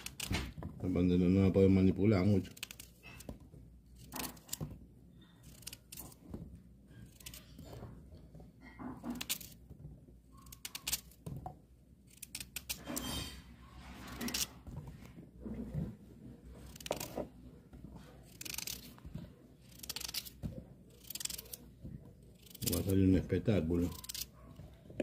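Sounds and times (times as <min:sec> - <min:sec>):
knife cutting potatoes: 0:00.0 - 0:04.8, 0:05.4 - 0:06.3, 0:06.9 - 0:08.0, 0:08.9 - 0:09.7, 0:10.3 - 0:11.2, 0:12.0 - 0:14.6, 0:15.8 - 0:17.4, 0:18.0 - 0:24.6.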